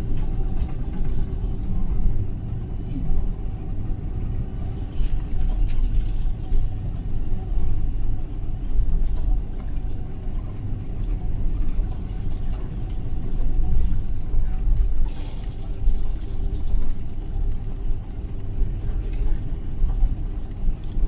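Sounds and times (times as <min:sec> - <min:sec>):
aircraft engines low rumble: 0:00.0 - 0:21.0.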